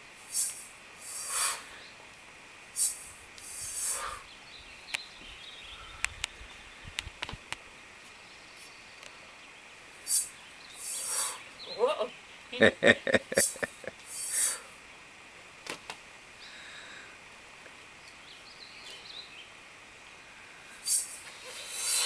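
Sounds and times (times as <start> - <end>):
steel mace swinging hiss: 0.2 - 1.8, 2.7 - 4.2, 10.0 - 11.4, 13.4 - 14.7, 20.7 - 22.0.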